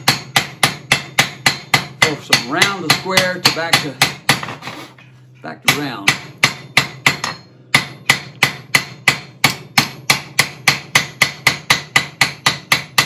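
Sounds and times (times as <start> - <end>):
hammer striking steel on anvil: 0.0 - 4.6, 5.6 - 13.0.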